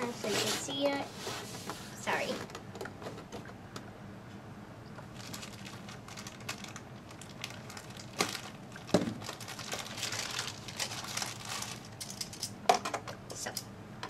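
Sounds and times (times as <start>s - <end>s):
plastic bag crinkling: 5.0s - 12.5s.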